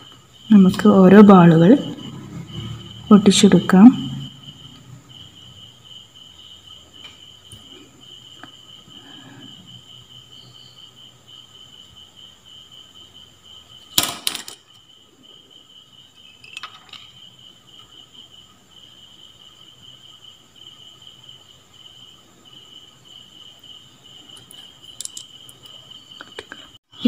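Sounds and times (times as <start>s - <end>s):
cricket chirping: 0.0s - 27.0s.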